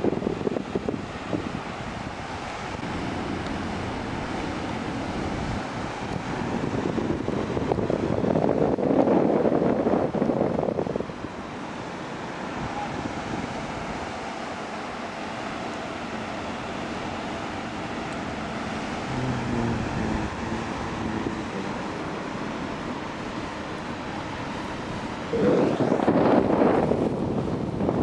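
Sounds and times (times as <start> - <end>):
wind on microphone: 0.0 - 14.2, 16.2 - 28.0.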